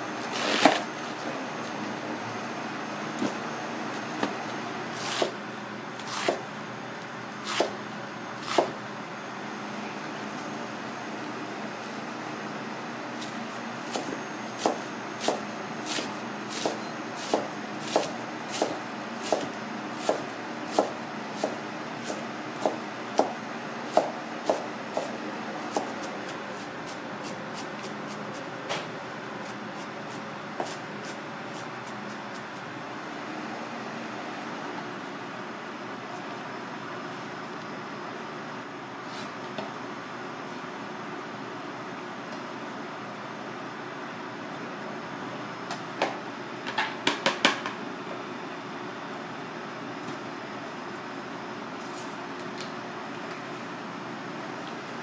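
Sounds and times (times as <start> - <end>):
steady background noise: 0.0 - 55.0
knife chopping cabbage on board: 5.0 - 5.4, 6.0 - 6.4, 7.4 - 7.8, 8.4 - 8.8, 13.9 - 26.1, 29.8 - 32.4.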